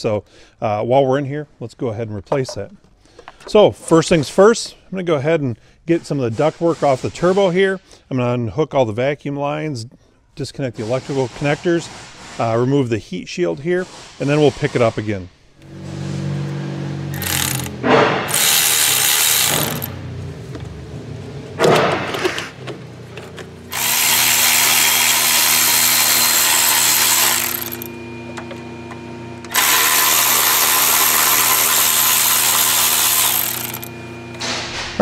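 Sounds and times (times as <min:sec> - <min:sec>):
cordless electric ratchet running: 0:17.1 - 0:20.0, 0:23.7 - 0:28.1, 0:29.4 - 0:34.0.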